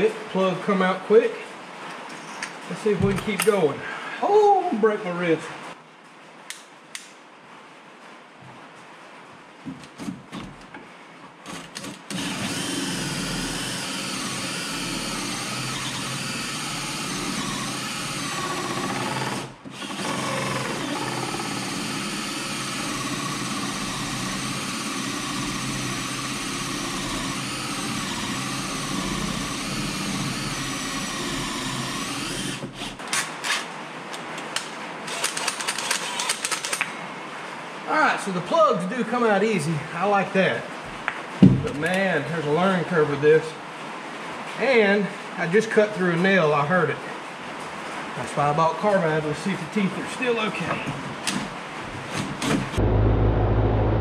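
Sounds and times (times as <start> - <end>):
drill with hole saw cutting wood: 11.5 - 33.1, 35.1 - 36.7.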